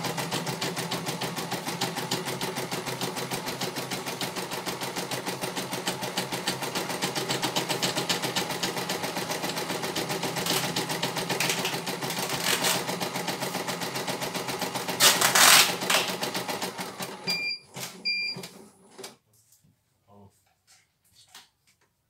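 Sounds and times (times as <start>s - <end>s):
embroidery machine stitching: 0.0s - 19.0s
short beeps: 17.3s - 18.4s.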